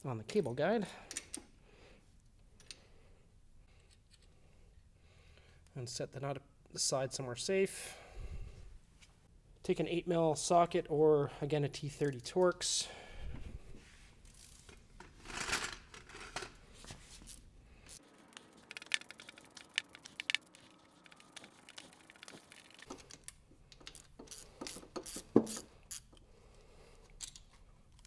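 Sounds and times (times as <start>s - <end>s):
hand ratchet clicking: 23.7s - 26.2s.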